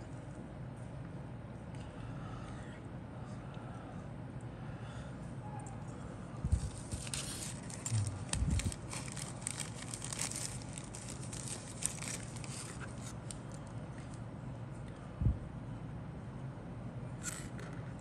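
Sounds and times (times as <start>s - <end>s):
plastic bag crinkling: 6.6s - 13.7s.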